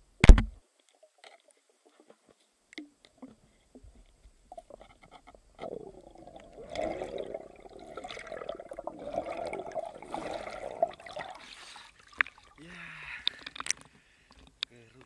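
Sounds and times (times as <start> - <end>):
underwater gurgling and bubbling: 5.4 - 11.6.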